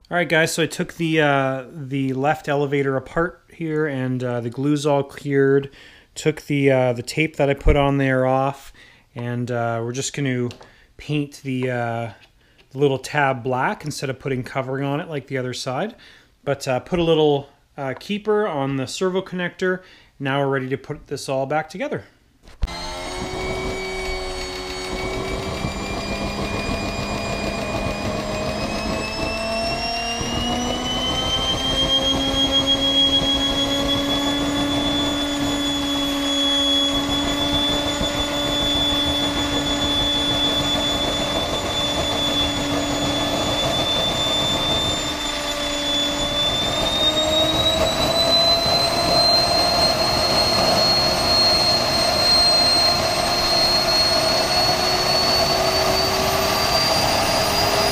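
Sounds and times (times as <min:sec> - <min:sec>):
turboprop engine whine: 0:22.6 - 0:57.9.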